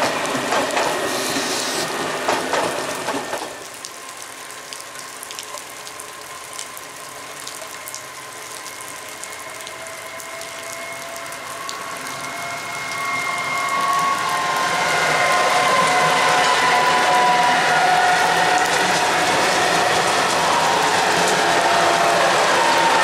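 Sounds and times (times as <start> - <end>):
train clicks: 0.0 - 3.6, 18.3 - 23.0
train high whine: 0.0 - 3.8, 5.6 - 23.0.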